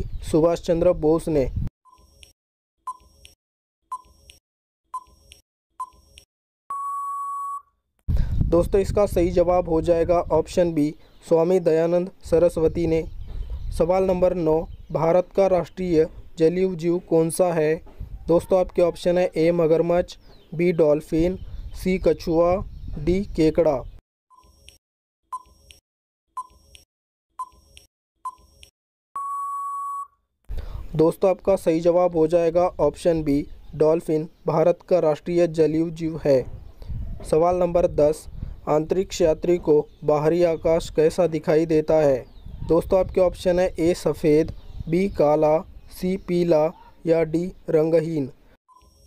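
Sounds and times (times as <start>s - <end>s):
countdown timer beeping: 5.0s - 7.6s
steady beep: 6.7s - 7.7s, 29.2s - 30.2s.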